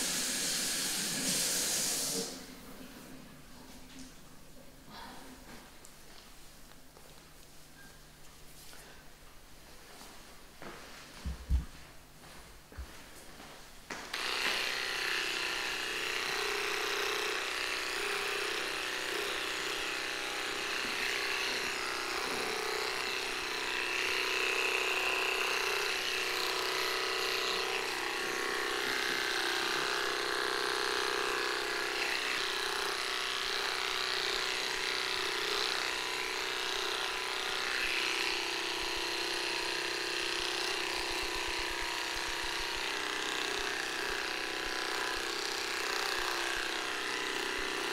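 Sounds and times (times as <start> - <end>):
electric clippers buzzing: 0.0 - 2.2, 14.0 - 47.9.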